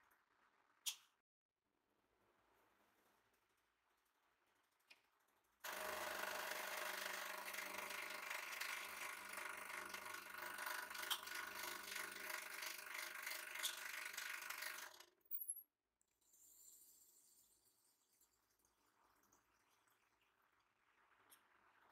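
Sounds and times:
hydraulic pump motor running: 0:05.7 - 0:15.1.

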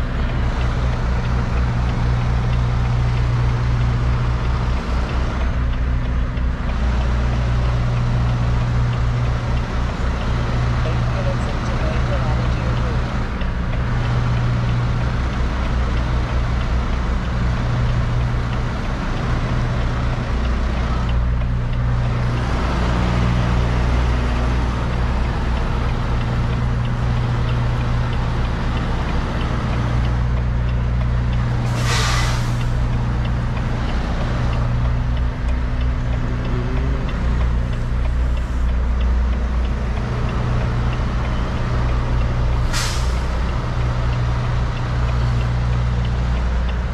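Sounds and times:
diesel truck engine droning: 0:00.0 - 0:46.9
air brake hiss: 0:31.7 - 0:32.7, 0:42.7 - 0:43.3.

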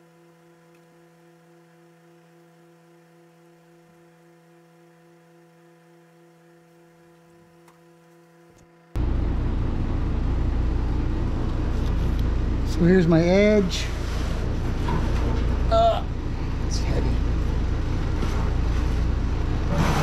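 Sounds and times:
faint steady hum: 0:00.0 - 0:19.8.

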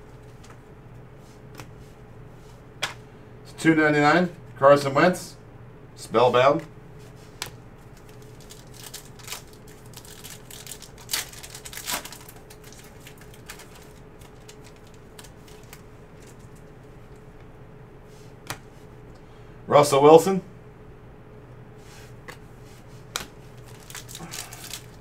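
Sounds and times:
foil wrapper tearing and crinkling: 0:07.9 - 0:16.6, 0:23.5 - 0:25.0.

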